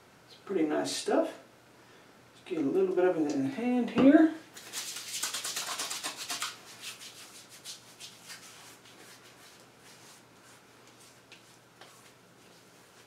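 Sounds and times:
hands rubbing skin: 4.6 - 13.0
hands rubbing together: 4.6 - 13.0.

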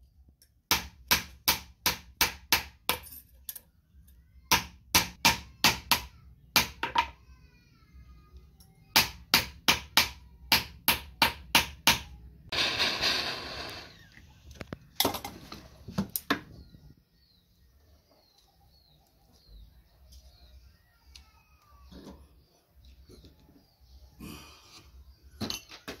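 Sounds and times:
faint bird chirps: 16.4 - 25.8.

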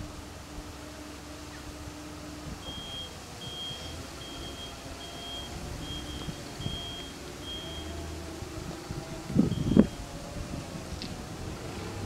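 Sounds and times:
crossing warning signal beeping: 2.6 - 8.2, 9.3 - 10.2.

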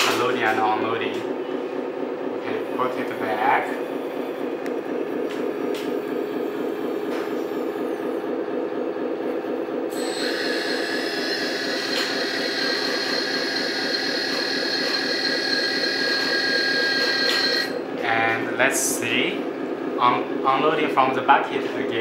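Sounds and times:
hydraulic pulsing hum: 0.0 - 22.0
high steady whine: 9.9 - 22.0.

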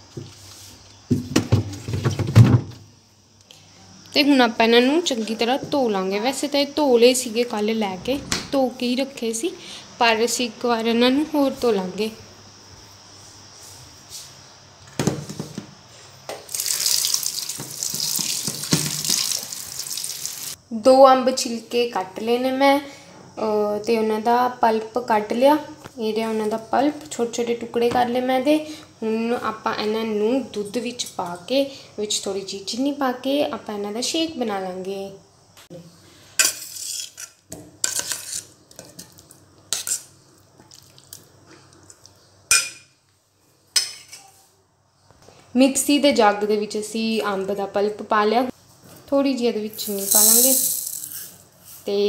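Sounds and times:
tap water splashing in steel sink: 16.4 - 20.4
plastic basket knocking on sink: 17.6 - 19.2.

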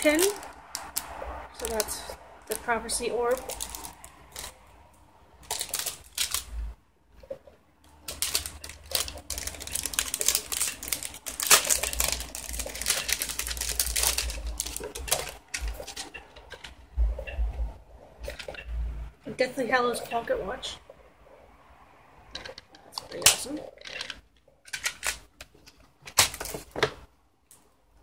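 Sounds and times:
plastic packaging crinkling: 0.0 - 4.6, 5.4 - 16.8, 22.4 - 26.8.

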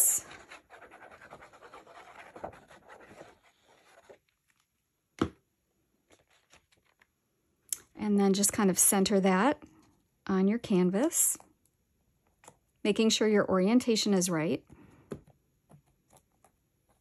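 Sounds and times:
glue bottle scratching on paper: 0.2 - 4.2
paper rustling: 6.0 - 7.1.

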